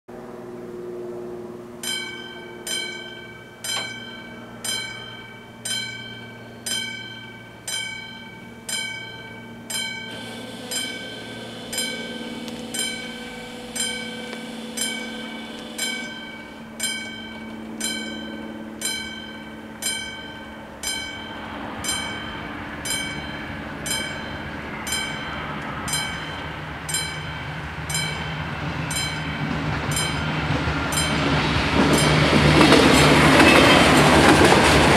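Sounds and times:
train rumbling: 0:00.2 - 0:34.9
level crossing bell ringing: 0:01.8 - 0:34.5.

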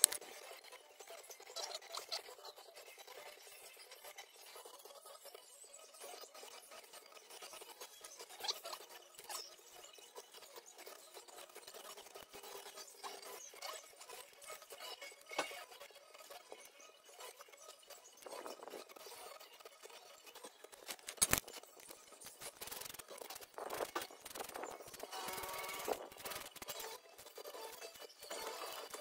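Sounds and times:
metallic clicks and scrapes of tools: 0:00.0 - 0:00.3, 0:20.7 - 0:27.7
sharp metal click: 0:20.9 - 0:21.5.

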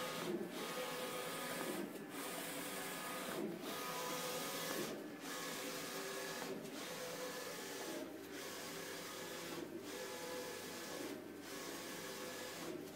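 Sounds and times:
inkjet printer printing: 0:00.0 - 0:12.9.

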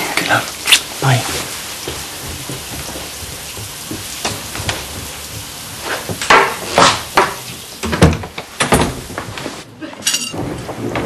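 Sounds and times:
shower spray hissing: 0:00.0 - 0:07.8.

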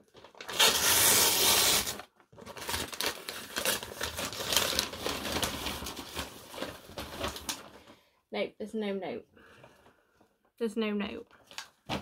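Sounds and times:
paper crackling and crinkling: 0:00.0 - 0:08.0
paper mailer tearing: 0:00.2 - 0:07.6.

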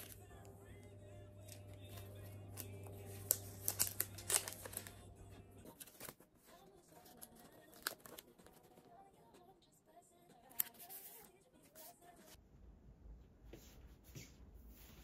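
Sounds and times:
plastic sleeves rustling: 0:01.4 - 0:05.1.

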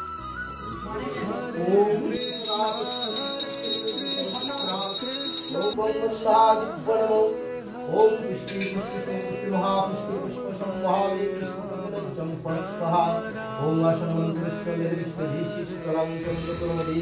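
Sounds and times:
hand bell ringing rapidly: 0:02.1 - 0:05.8.

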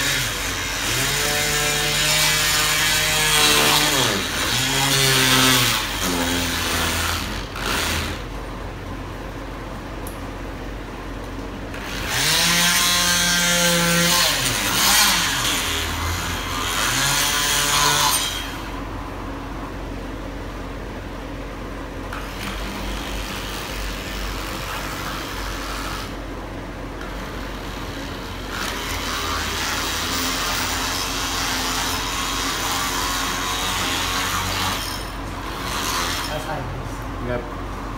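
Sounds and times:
power tool scraper buzzing: 0:00.0 - 0:08.4, 0:11.7 - 0:18.9, 0:22.1 - 0:26.2, 0:27.0 - 0:36.6.

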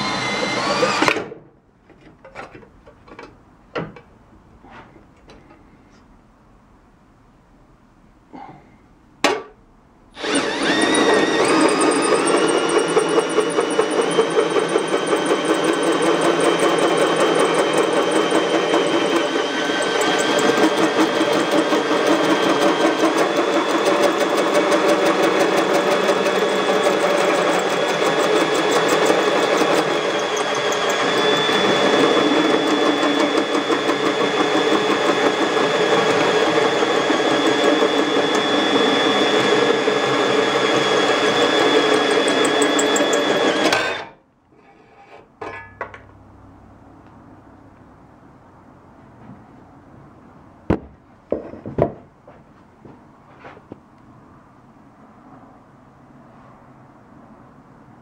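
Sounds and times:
drill with hole saw cutting: 0:00.0 - 0:01.3, 0:10.1 - 0:44.7.

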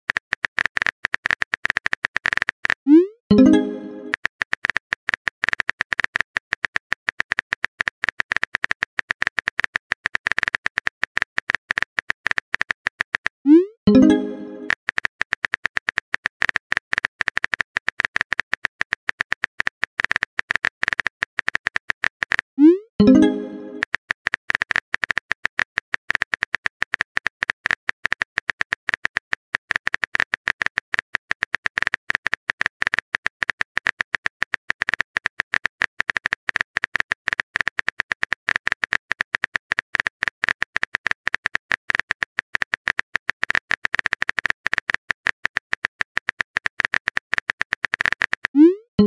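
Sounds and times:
smartphone keyboard typing clicks: 0:00.1 - 0:48.8.

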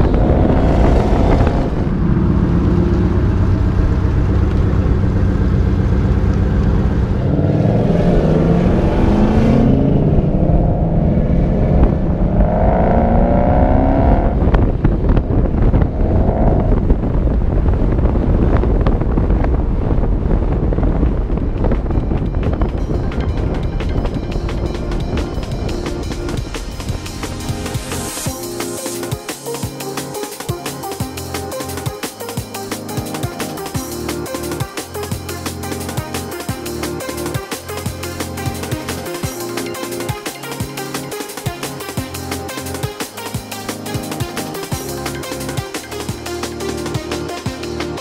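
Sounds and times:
car engine accelerating: 0:00.0 - 0:28.4
wind and road noise: 0:00.0 - 0:48.0.

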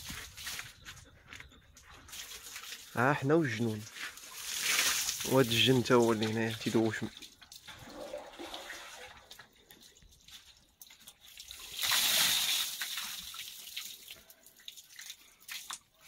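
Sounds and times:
water dripping and trickling: 0:01.7 - 0:16.0
water splashing over person: 0:03.6 - 0:09.3.

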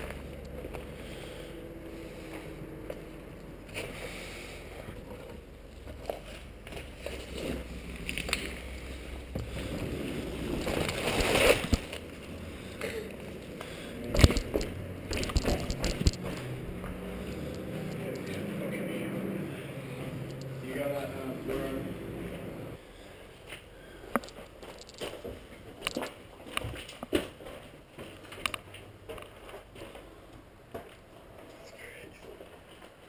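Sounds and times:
scraping: 0:02.1 - 0:18.5
camera handling rumble: 0:10.5 - 0:12.1, 0:14.1 - 0:16.6, 0:24.1 - 0:27.2.

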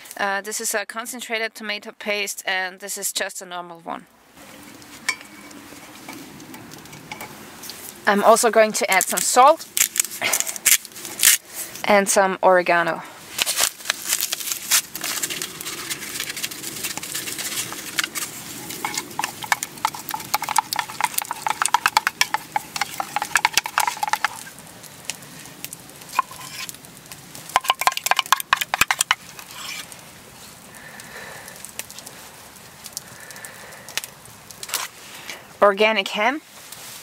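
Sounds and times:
wooden stick scraping metal cup: 0:13.4 - 0:24.6, 0:26.0 - 0:26.8, 0:27.5 - 0:30.0.

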